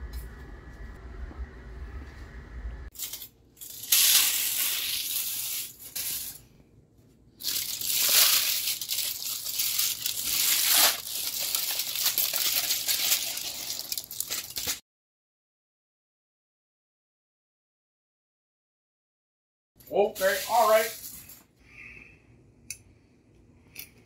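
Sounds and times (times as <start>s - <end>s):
aluminium foil crinkling: 7.4s - 14.8s.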